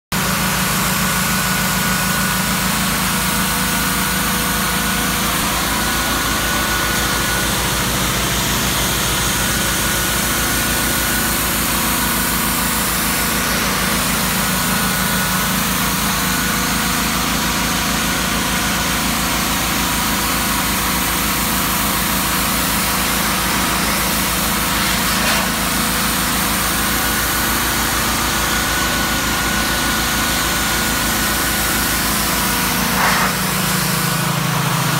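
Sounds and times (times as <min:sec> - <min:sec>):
pressure washer pump humming: 0:00.2 - 0:34.9
water jet hissing against wood: 0:23.8 - 0:26.6, 0:32.7 - 0:34.2.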